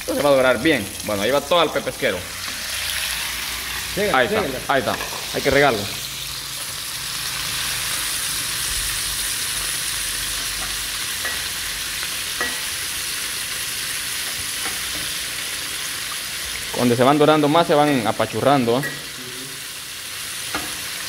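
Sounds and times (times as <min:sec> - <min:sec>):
fish sizzling in hot oil: 0:00.0 - 0:21.0.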